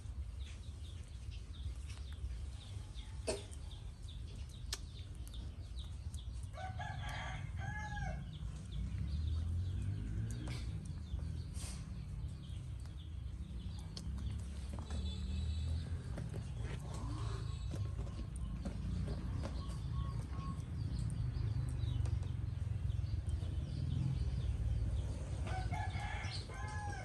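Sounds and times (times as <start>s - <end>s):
faint clicks: 4.4s - 6.6s
rooster crowing: 6.6s - 8.2s, 25.4s - 27.0s.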